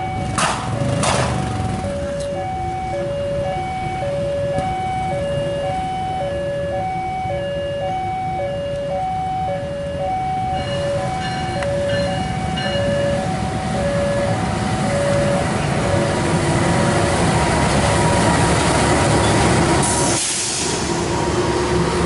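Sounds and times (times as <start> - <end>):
level crossing two-tone alarm: 0.0 - 1.0, 1.7 - 16.2
low rumble of engines: 0.0 - 22.0.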